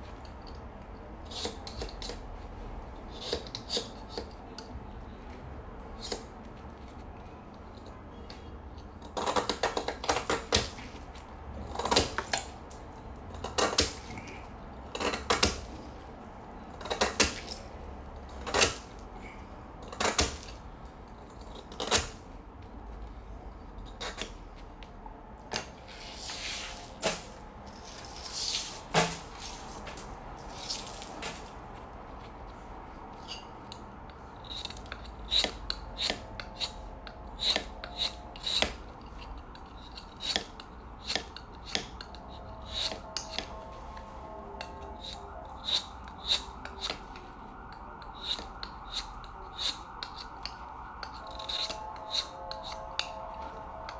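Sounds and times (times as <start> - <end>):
knife scraping ice: 1.2 - 2.2, 3.1 - 4.4, 13.4 - 15.7, 34.4 - 36.8, 37.4 - 43.6, 44.7 - 47.0, 48.1 - 53.2.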